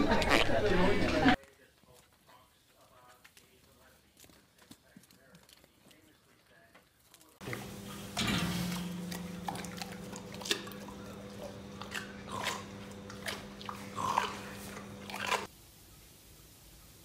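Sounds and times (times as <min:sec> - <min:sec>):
pig crunching carrot: 0:01.4 - 0:15.5
steady low hum: 0:07.4 - 0:15.5.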